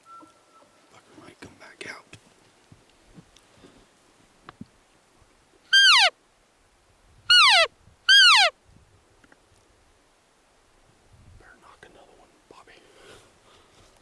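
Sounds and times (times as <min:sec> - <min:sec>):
elk mews sliding down: 0:05.7 - 0:06.1, 0:07.3 - 0:08.5.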